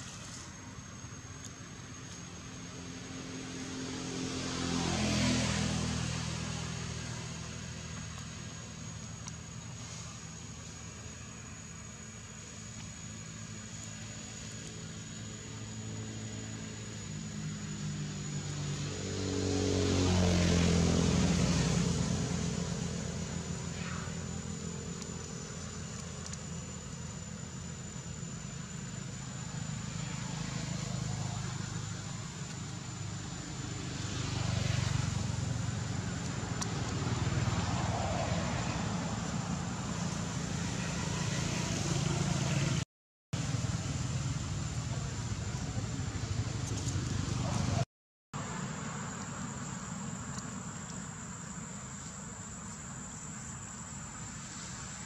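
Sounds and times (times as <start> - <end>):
vehicle engine passing by: 2.6 - 10.4, 16.0 - 26.0, 29.6 - 42.8, 43.4 - 49.9
thin high whine: 20.4 - 42.8.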